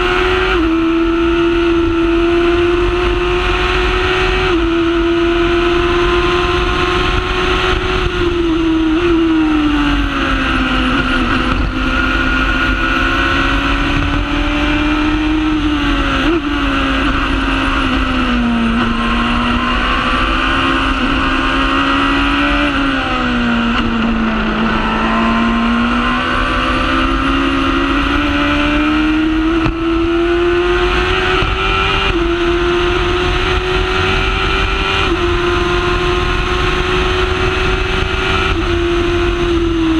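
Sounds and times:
engine running at high revs: 0:00.0 - 0:39.9.

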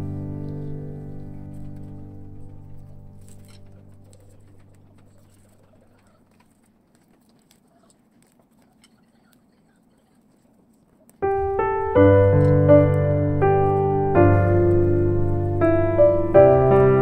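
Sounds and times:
piano music: 0:00.0 - 0:05.6, 0:11.2 - 0:17.0
paper being folded: 0:00.2 - 0:15.6.

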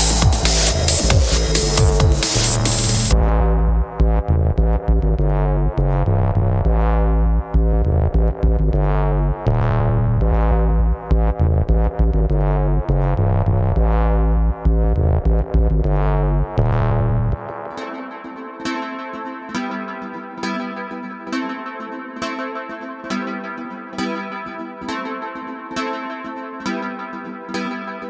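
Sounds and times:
drum machine: 0:00.0 - 0:03.6
heavy synth bass: 0:00.0 - 0:17.8
synthesizer chords: 0:00.0 - 0:28.0.

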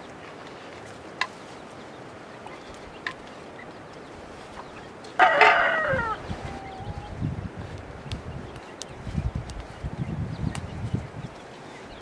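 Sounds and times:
chicken squawking: 0:05.2 - 0:07.2.

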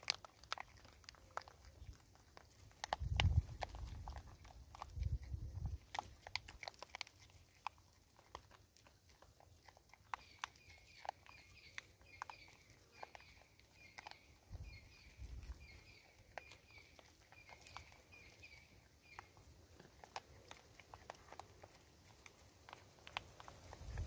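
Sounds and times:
monkeys crunching corn kernels: 0:00.0 - 0:24.0
bird chirping: 0:10.0 - 0:19.5.

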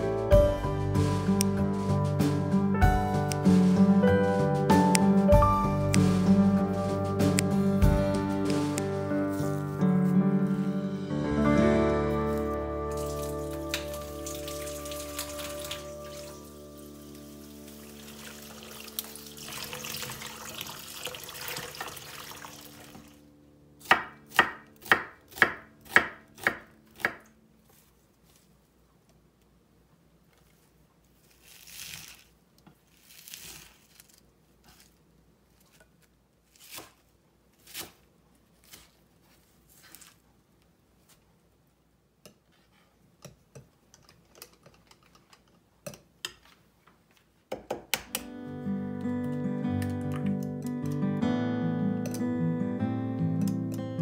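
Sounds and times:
knife chopping on wooden board: 0:23.8 - 0:27.2.

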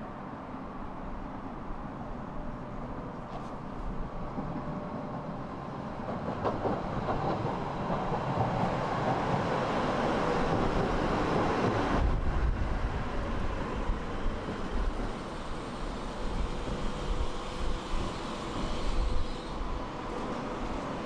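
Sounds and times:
tram rolling on rails: 0:00.0 - 0:21.0.

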